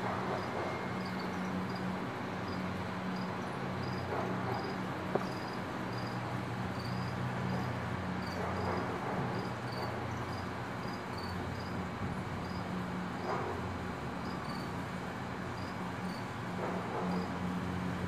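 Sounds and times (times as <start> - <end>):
insects chirping: 0.7 - 8.4, 9.3 - 11.8, 12.4 - 12.8, 14.2 - 14.8, 15.6 - 16.2.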